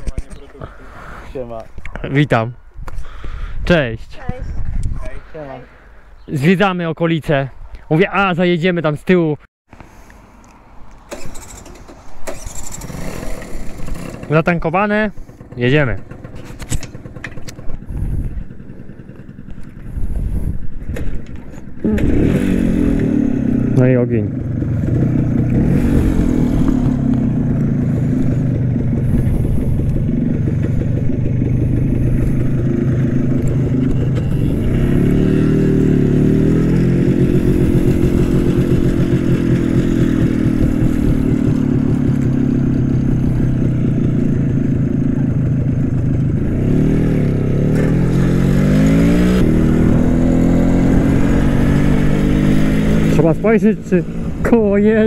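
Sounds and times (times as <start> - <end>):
motorcycle engine accelerating: 11.1 - 55.0.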